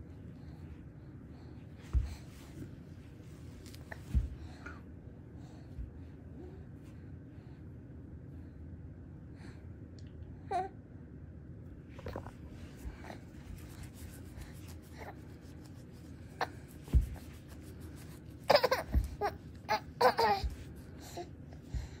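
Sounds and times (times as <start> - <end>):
baby laughing and babbling: 18.4 - 21.3.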